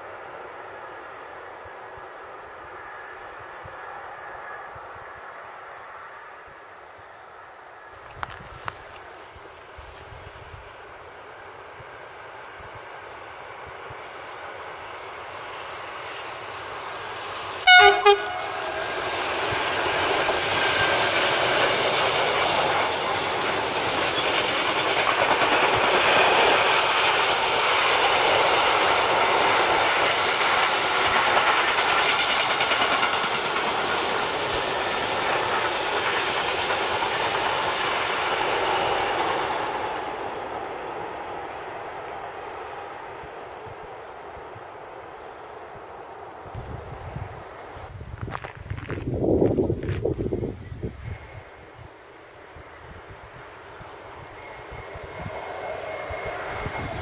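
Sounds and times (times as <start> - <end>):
train wagons rumbling and clattering: 13.8 - 51.2
locomotive horn blast: 17.6 - 19.0.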